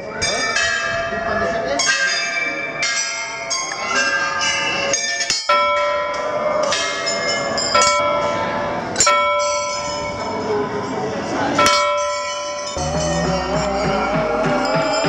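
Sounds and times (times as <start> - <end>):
brass bells ringing: 11.6 - 15.0.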